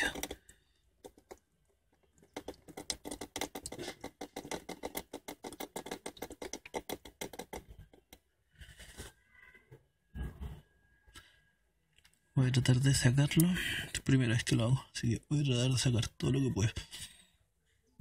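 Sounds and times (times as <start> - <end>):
liquid dripping onto plastic sheet: 2.0 - 7.7.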